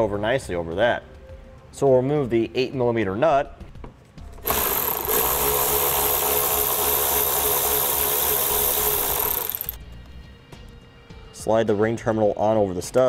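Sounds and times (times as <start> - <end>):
cordless power driver running: 4.4 - 9.8.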